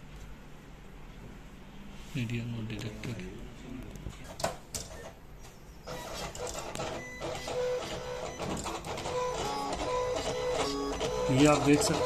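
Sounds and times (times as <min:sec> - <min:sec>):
plotter motors whirring: 0:05.9 - 0:12.0.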